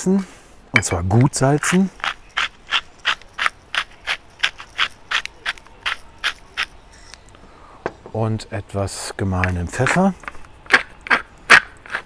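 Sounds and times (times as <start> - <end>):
salt mill grinding: 0.8 - 7.2, 10.7 - 12.0.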